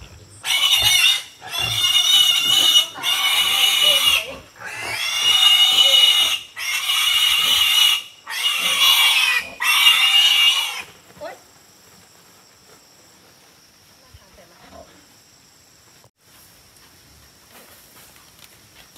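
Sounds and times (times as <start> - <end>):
pig squealing: 0.0 - 11.0.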